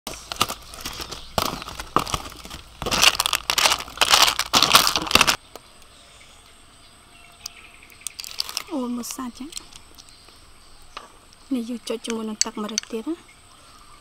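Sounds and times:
aluminium foil crinkling: 0.1 - 5.4, 8.0 - 10.0
clam shells rattling: 0.9 - 5.4, 8.0 - 8.7.

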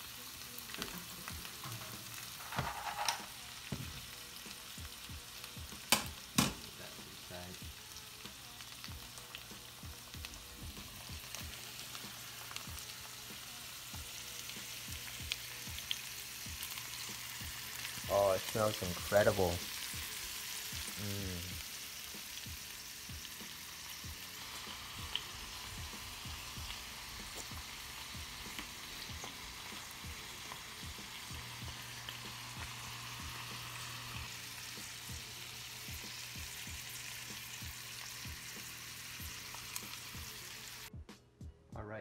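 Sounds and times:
shellfish sizzling in a frying pan: 0.0 - 40.9
crackles and pops: 25.0 - 33.3.

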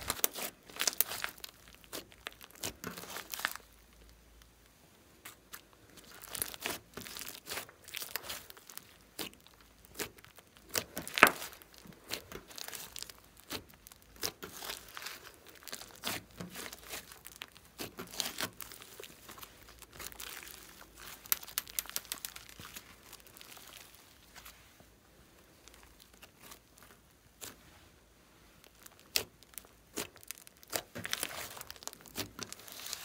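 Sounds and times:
sticky slime crackles and clicks: 0.0 - 4.5, 5.2 - 24.5, 28.6 - 33.0
slime popping: 6.0 - 24.0, 28.6 - 33.0.

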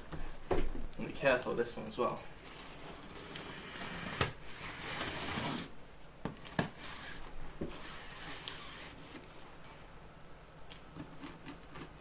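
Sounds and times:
cardboard rubbing and scraping: 2.5 - 5.7, 6.7 - 9.3.

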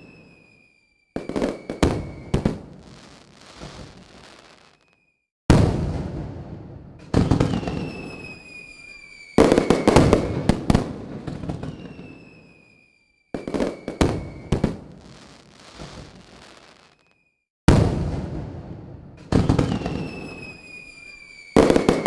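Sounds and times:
fireworks whistles sliding down: 0.0 - 5.2, 7.2 - 17.4, 19.3 - 22.0
fireworks bangs and crackle: 0.0 - 22.0.

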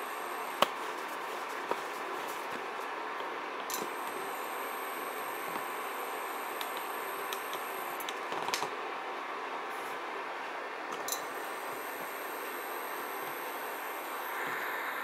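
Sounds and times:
induction cooker fan hiss: 0.0 - 15.0
high-pitched whine: 3.7 - 8.0, 11.1 - 15.0.

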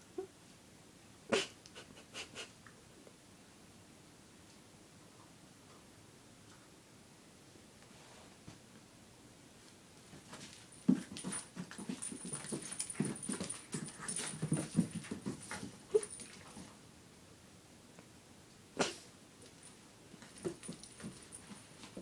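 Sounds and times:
puppy play noises: 10.2 - 16.8, 19.5 - 22.0.

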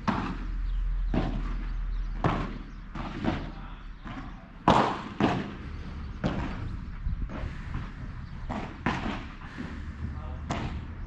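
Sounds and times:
padel ball hit by paddles: 2.2 - 5.6, 6.2 - 6.7, 8.5 - 9.4, 10.5 - 10.8.

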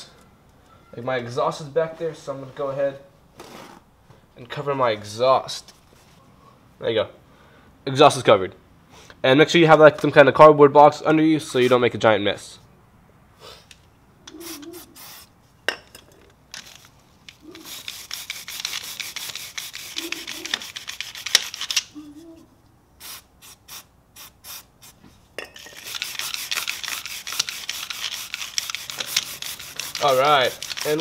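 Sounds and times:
brush scrubbing wet chain: 17.3 - 21.9, 25.6 - 31.0.

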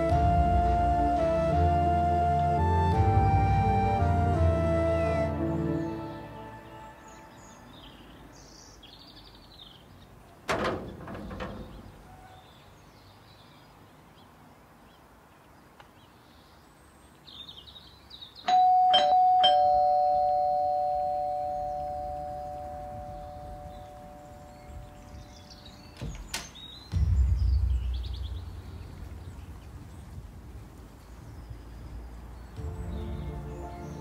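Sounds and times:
two-tone doorbell chime: 18.5 - 24.9.

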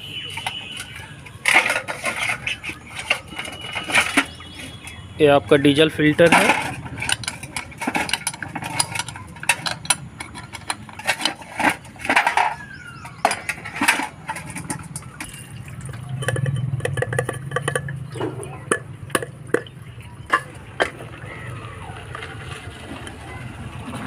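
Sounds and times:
spanner clinking on metal: 6.2 - 19.3
low engine hum: 14.5 - 24.0.

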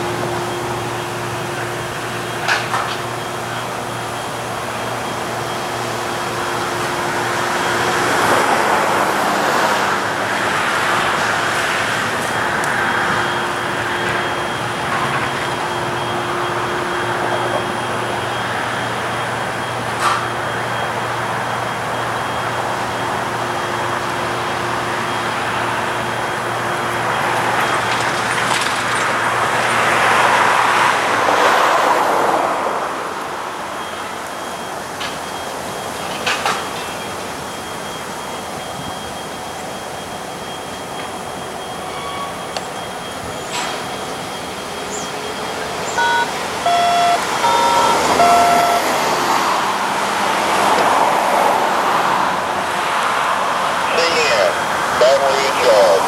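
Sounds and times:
road traffic passing: 0.0 - 56.0
locomotive air horn blasts: 46.0 - 49.2.

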